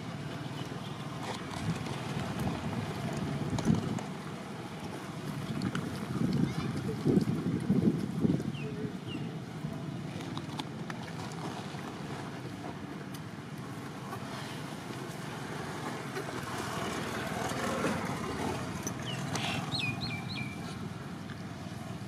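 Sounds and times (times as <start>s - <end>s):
wind buffeting microphone: 1.3s - 9.6s.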